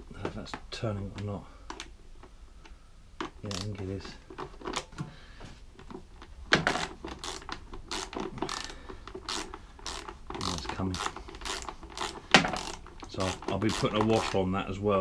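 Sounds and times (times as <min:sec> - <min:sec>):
hand ratchet clicking: 0:06.7 - 0:14.4.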